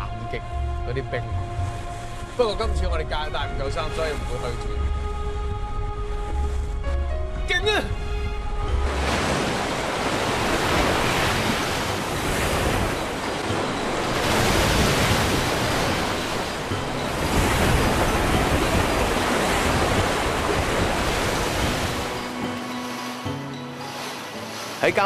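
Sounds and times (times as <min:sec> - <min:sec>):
surf breaking against rocks: 0:08.9 - 0:25.0.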